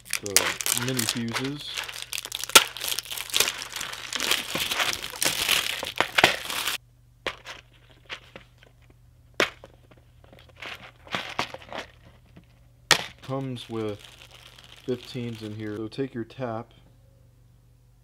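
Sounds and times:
plastic wrapping crinkling and tearing: 0:00.0 - 0:06.8, 0:13.1 - 0:15.8.

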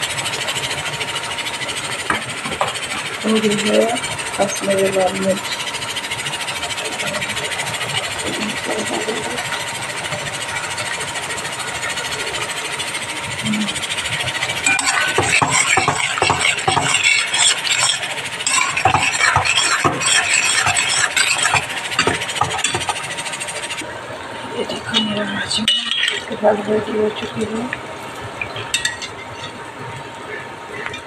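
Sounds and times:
masala sizzling in a pan: 0:12.5 - 0:23.8
metal spatula scraping pan: 0:14.6 - 0:23.8.

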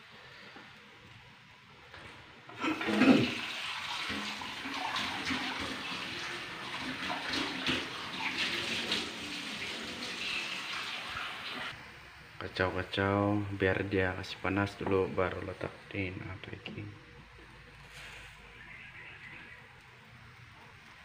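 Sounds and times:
tap water running into sink: 0:02.6 - 0:11.7.

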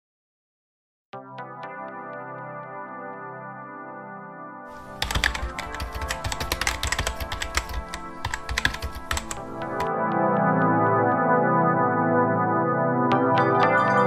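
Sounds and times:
electronic keyboard music: 0:01.2 - 0:14.0
typing on laptop keyboard: 0:04.7 - 0:09.9.

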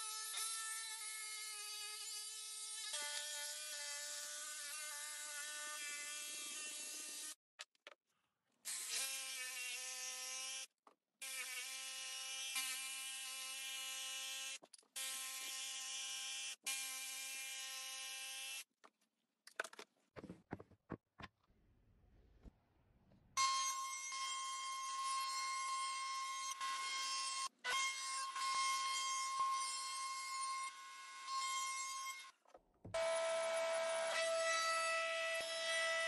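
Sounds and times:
wood knocking on bench: 0:20.2 - 0:21.3.

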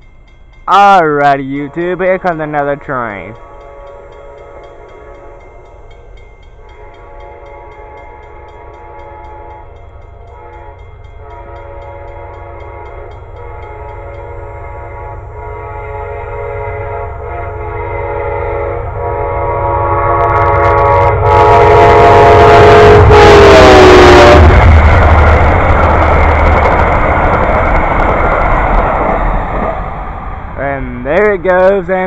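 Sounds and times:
train rushing past: 0:00.0 - 0:32.0
train air horn blasts: 0:03.4 - 0:05.5, 0:06.6 - 0:24.8.

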